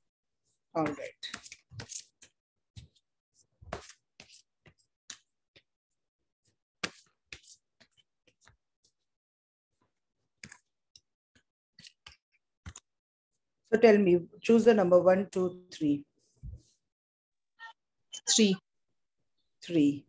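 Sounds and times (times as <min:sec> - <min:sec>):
cards being shuffled: 0:01.0 - 0:03.0.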